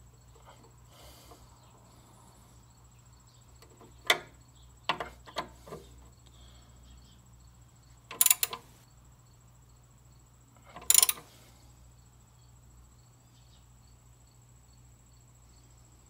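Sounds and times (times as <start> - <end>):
steady low hum: 0.0 - 16.0
parts clattering when handled: 8.1 - 8.7, 10.7 - 11.4.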